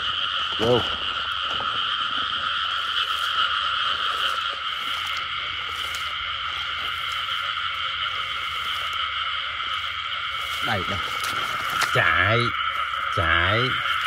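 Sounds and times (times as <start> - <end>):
chorus of frogs croaking: 0.0 - 14.0.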